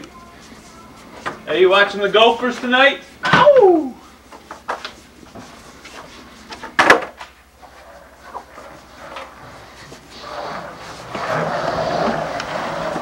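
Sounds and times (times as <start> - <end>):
footsteps: 4.3 - 12.2
skateboard wheels rolling on carpet: 4.4 - 13.0.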